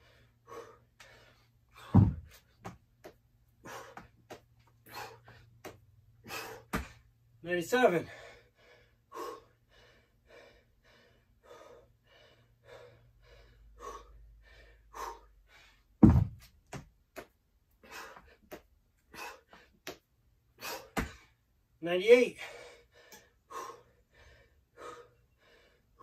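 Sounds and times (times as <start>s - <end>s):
man breathing hard: 0.0s - 2.6s, 3.6s - 7.1s, 8.0s - 16.0s, 17.7s - 19.9s, 20.5s - 21.4s, 22.3s - 26.0s
dumbbells thudding on floor: 1.8s - 2.8s, 6.7s - 7.0s, 16.0s - 17.0s, 20.8s - 21.3s.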